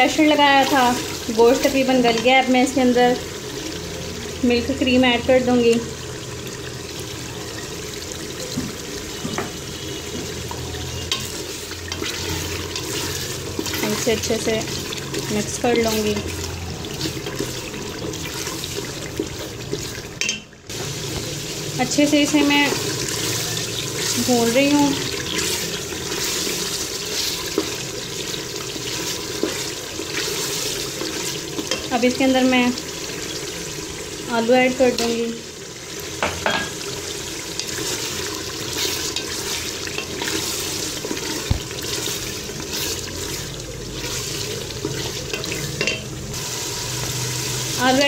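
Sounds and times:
curry sizzling in pot: 0:00.0 - 0:48.0
wooden spoon stirring: 0:10.3 - 0:20.4, 0:22.4 - 0:31.9, 0:37.6 - 0:46.0.

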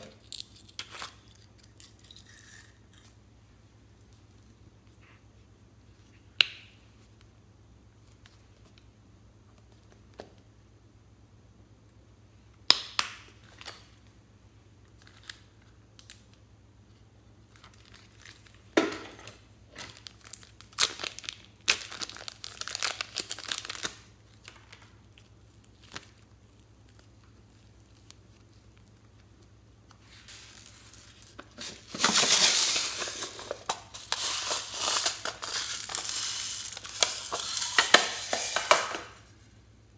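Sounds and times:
plastic bag crinkling: 0:19.7 - 0:29.2, 0:30.0 - 0:39.3.

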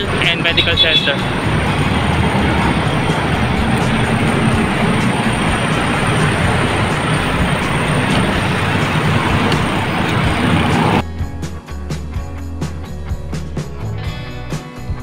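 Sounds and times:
road traffic: 0:00.0 - 0:11.0
wind rushing over microphone: 0:01.1 - 0:11.0.

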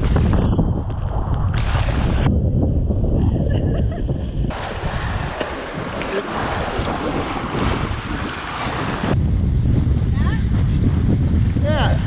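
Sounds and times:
wind buffeting microphone: 0:00.0 - 0:12.0
water rushing along hull: 0:04.1 - 0:12.0.

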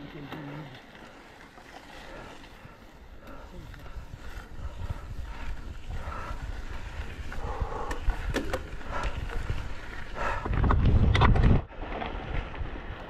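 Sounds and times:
heavy breathing: 0:01.9 - 0:10.6
wind rumbling on microphone: 0:01.9 - 0:13.0.

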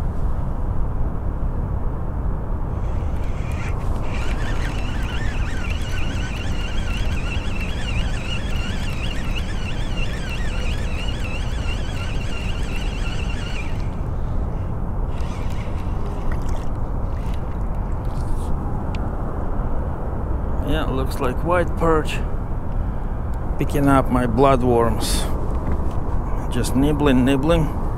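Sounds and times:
high warbling tone: 0:02.7 - 0:14.4.

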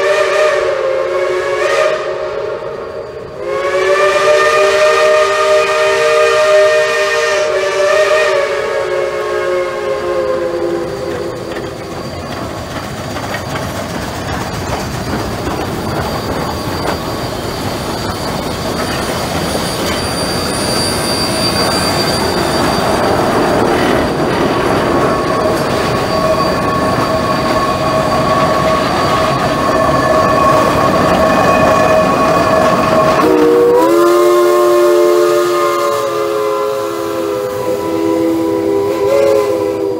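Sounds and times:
steam locomotive chord whistle: 0:00.0 - 0:12.3, 0:24.8 - 0:39.9
hissing steam: 0:00.0 - 0:39.9
steam locomotive exhaust chuffs: 0:00.0 - 0:39.9.

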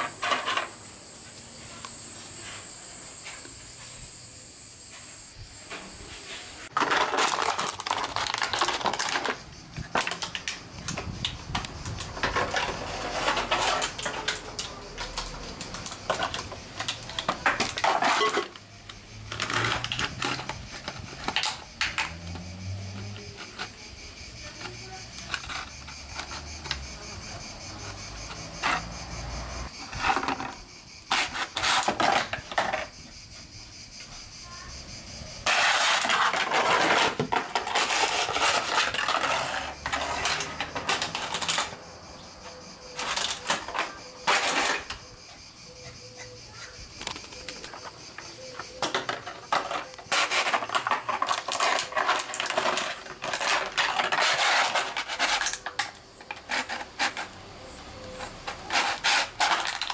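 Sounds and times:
plastic bottle crinkling on tiles: 0:06.7 - 0:22.4, 0:47.0 - 0:57.4, 0:58.2 - 0:59.9.

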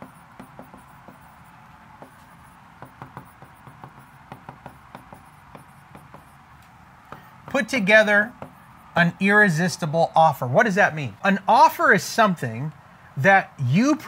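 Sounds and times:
stylus tapping and scratching glass: 0:00.0 - 0:09.0.

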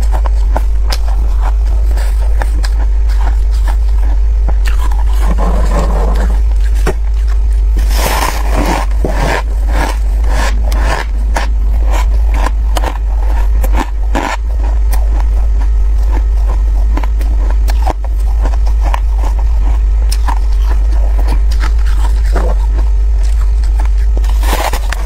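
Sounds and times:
steady low hum: 0:00.0 - 0:25.0
scooping frost: 0:07.8 - 0:11.0
crunching bites of frost: 0:24.2 - 0:25.0.

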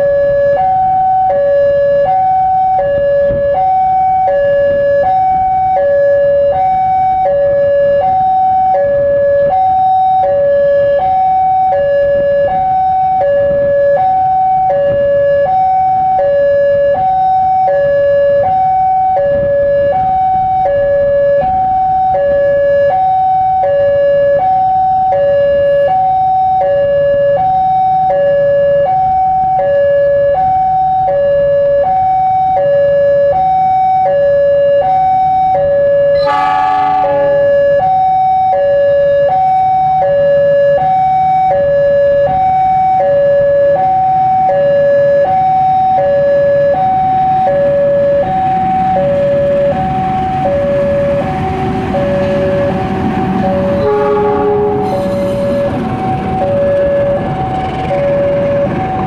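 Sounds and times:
level crossing two-tone alarm: 0:00.0 - 0:59.0
diesel locomotive rumble: 0:35.8 - 0:40.0, 0:46.9 - 0:59.0.

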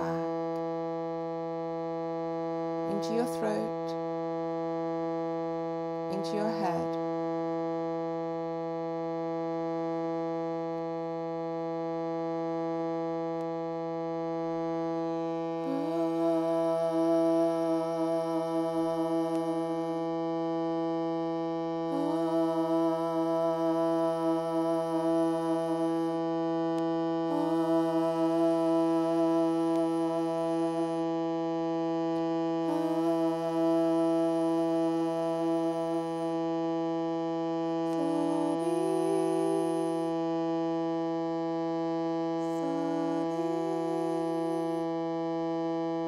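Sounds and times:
harmonium low drone: 0:14.4 - 0:40.6, 0:41.3 - 0:45.7.

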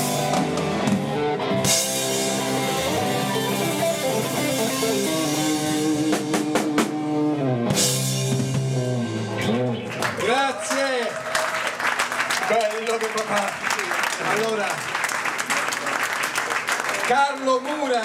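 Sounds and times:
electric guitar long notes: 0:00.0 - 0:10.0
drum kit: 0:00.0 - 0:10.1.

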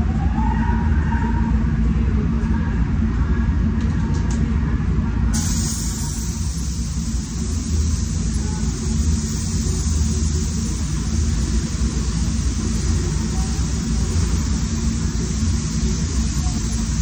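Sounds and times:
ventilation rumble: 0:00.0 - 0:17.0
spray gun hissing: 0:05.4 - 0:17.0.

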